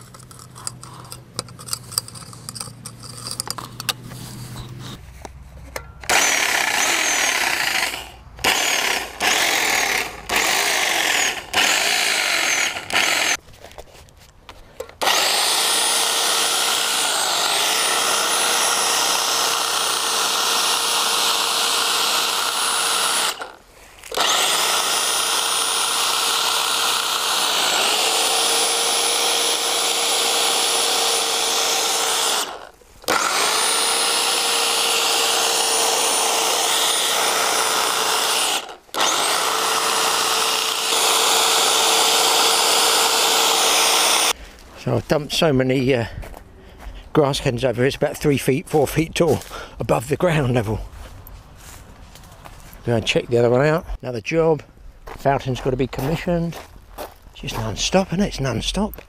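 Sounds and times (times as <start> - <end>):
electric hedge trimmer whining: 0.0 - 4.6, 5.8 - 13.4, 14.9 - 44.4.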